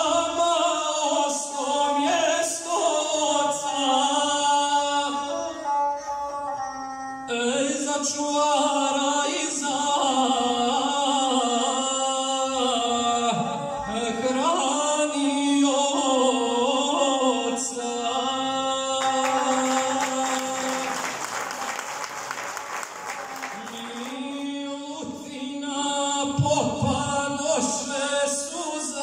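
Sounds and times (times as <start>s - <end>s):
person chanting a song: 18.6s - 22.2s, 23.1s - 25.4s
applause: 19.0s - 24.4s.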